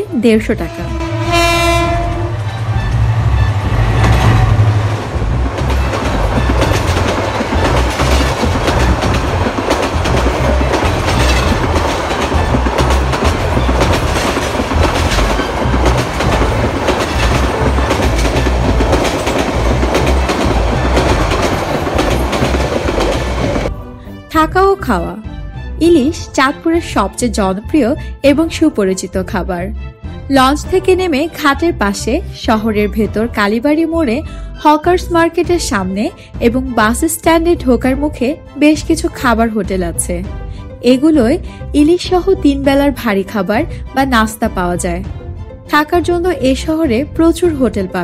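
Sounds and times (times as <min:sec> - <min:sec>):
locomotive engine rumble: 0:00.2 - 0:24.0
train horn: 0:00.5 - 0:04.8
train wheels clattering: 0:03.8 - 0:23.7.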